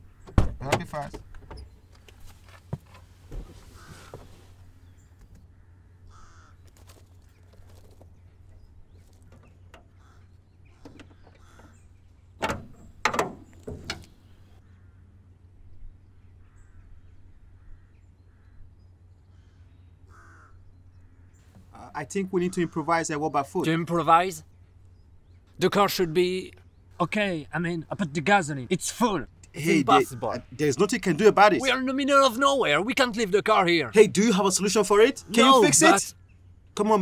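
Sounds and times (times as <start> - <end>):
crows cawing: 3.7 - 4.3, 5.5 - 7.8, 9.2 - 10.4, 11.1 - 11.8, 14.6 - 15.2, 19.3 - 21.5, 22.3 - 23.1, 29.9 - 30.5
car bonnet clunks: 12.4 - 14.3.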